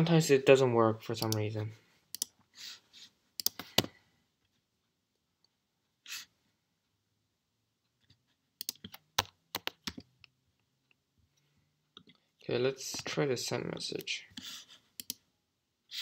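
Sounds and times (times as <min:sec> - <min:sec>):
computer mouse and keyboard clicks: 0:03.4 - 0:03.9, 0:08.1 - 0:10.3.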